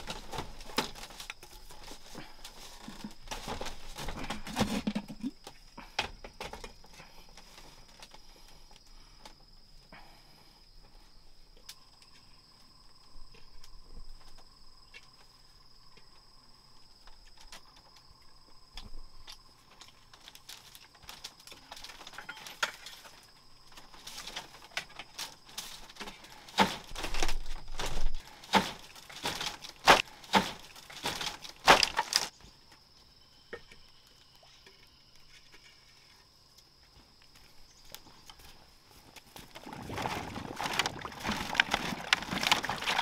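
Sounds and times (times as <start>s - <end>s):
insects droning: 0.0s - 43.0s
sharp knocks and cracks: 18.7s - 32.4s.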